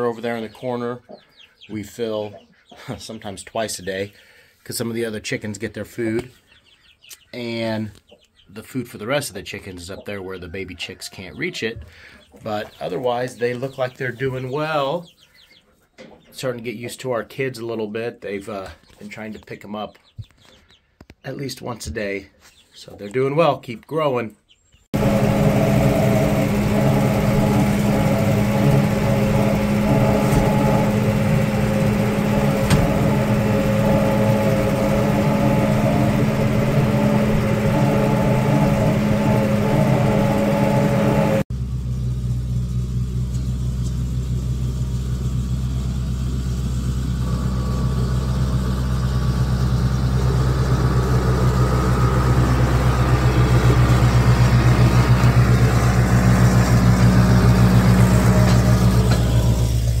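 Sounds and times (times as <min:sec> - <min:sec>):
tractor engine running: 0:24.9 - 1:00.0
tractor driving past: 0:25.0 - 1:00.0.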